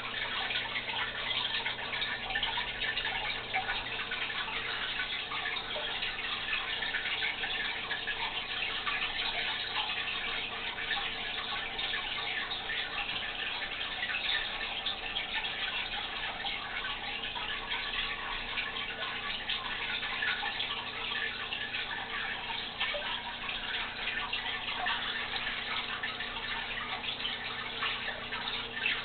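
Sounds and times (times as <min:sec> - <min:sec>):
aquarium water trickling and bubbling: 0:00.0 - 0:29.0.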